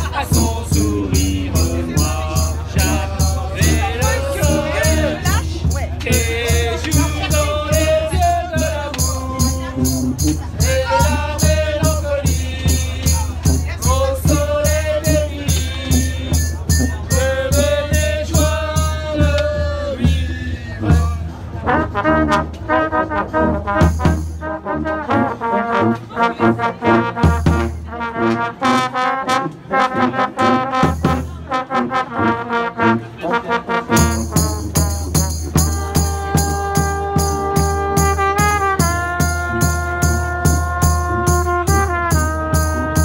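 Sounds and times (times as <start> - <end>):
bass drum beat: 0.0 - 21.5
brass band playing: 0.0 - 43.0.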